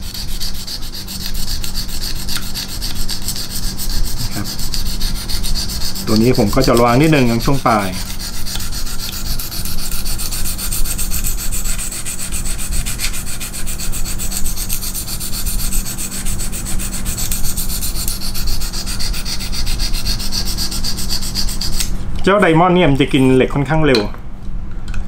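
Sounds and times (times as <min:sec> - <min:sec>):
sharpening stone rasping on knife: 0:00.0 - 0:22.0.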